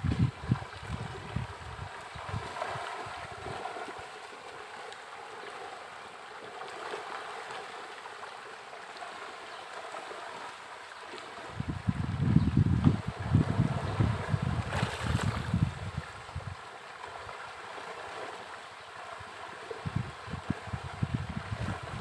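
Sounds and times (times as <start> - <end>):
wind buffeting microphone: 0.0 - 3.8, 11.5 - 16.6, 19.8 - 22.0
pond water lapping and gurgling: 0.0 - 22.0.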